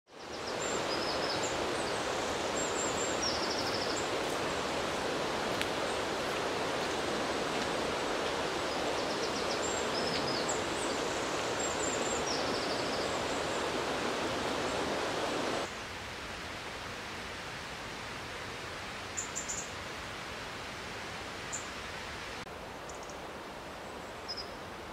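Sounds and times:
small birds chirping: 0.1 - 14.9
rushing water: 0.1 - 24.9.

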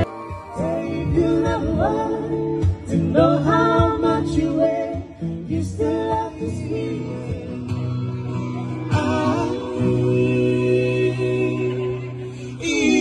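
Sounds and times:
acoustic guitar strumming: 0.0 - 13.0
person singing: 8.8 - 13.0.

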